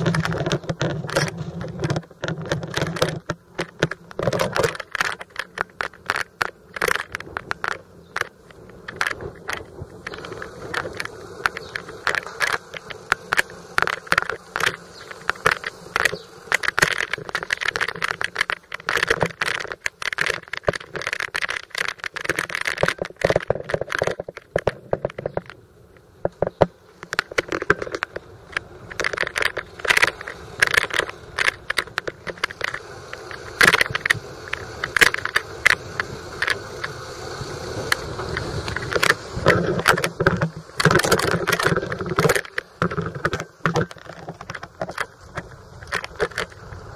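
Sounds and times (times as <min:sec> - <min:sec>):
bicycle basket rattling: 0:00.0 - 0:46.9
microphone handling noise: 0:00.0 - 0:46.9.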